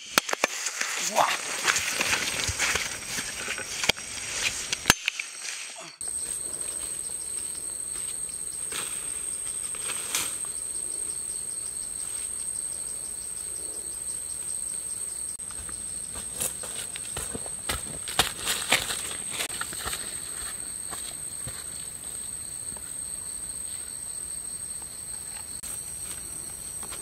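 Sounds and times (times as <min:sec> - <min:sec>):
forest insects droning and trilling: 0:00.0 - 0:27.0
footsteps in dry leaves: 0:00.5 - 0:06.8, 0:16.2 - 0:20.6.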